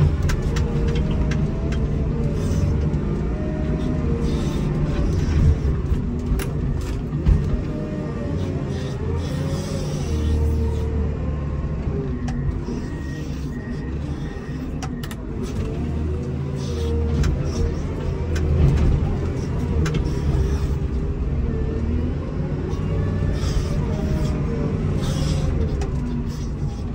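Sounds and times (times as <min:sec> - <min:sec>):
diesel engine under load: 0:00.0 - 0:26.9.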